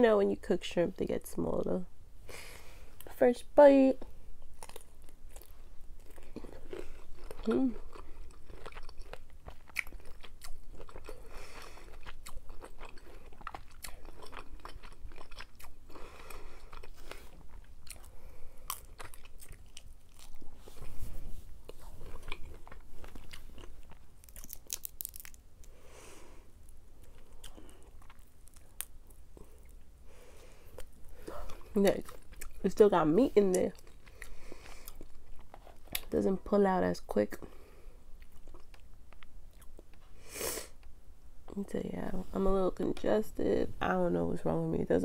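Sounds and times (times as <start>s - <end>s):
person chewing: 4.4s - 32.6s, 33.4s - 36.1s, 38.1s - 40.9s.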